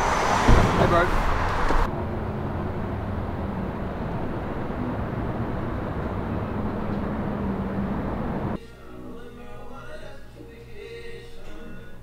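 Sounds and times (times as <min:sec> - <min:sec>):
distant city traffic rumble: 0:00.0 - 0:08.6
street noise: 0:00.0 - 0:08.6.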